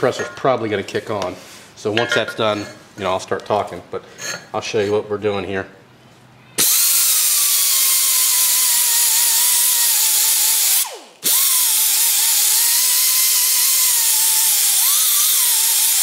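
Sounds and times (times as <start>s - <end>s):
air tool wire brush whining: 6.6s - 16.0s.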